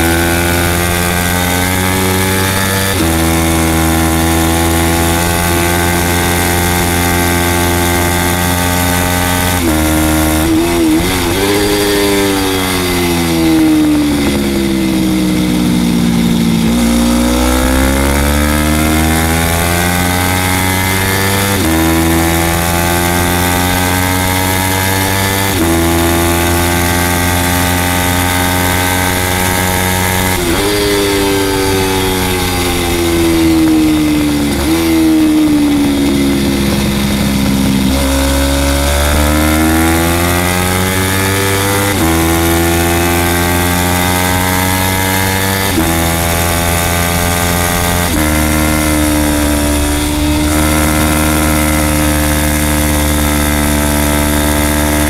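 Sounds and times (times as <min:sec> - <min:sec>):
motorcycle engine revving high: 0:00.0 - 0:55.0
wind rush: 0:07.9 - 0:22.7, 0:27.6 - 0:41.8, 0:46.0 - 0:53.5.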